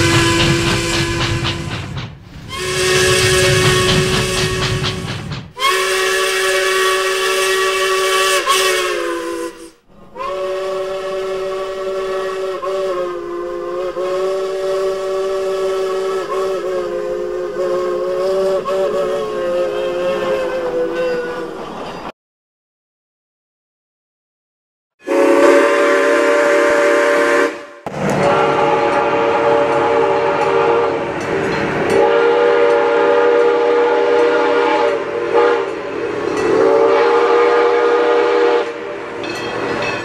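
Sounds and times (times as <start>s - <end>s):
steam locomotive chime whistle: 0.0s - 1.8s, 2.5s - 21.6s, 25.0s - 40.0s
steam hiss: 0.0s - 9.7s.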